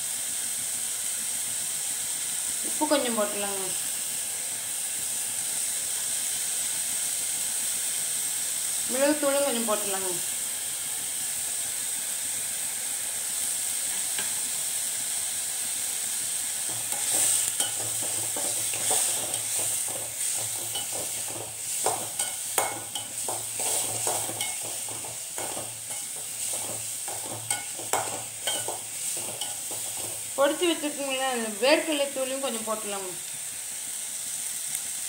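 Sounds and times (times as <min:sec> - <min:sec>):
vegetables sizzling in hot oil: 0:00.0 - 0:35.0
metal spoon scraping a pan: 0:16.7 - 0:30.4.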